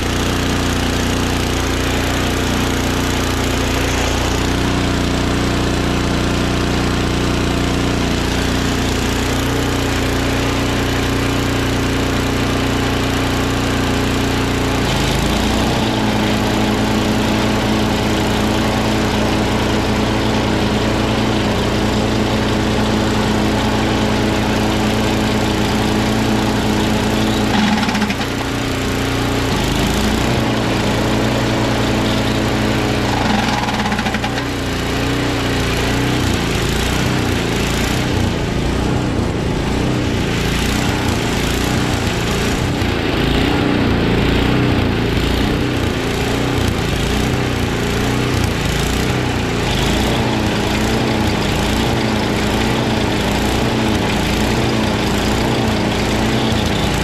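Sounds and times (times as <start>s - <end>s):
snowblower engine running: 0.0s - 57.0s
auger belt rattling: 27.3s - 29.1s, 32.9s - 34.7s.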